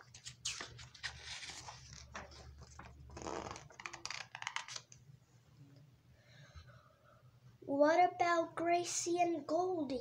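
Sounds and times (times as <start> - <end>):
paper page rustling: 0.0 - 5.0.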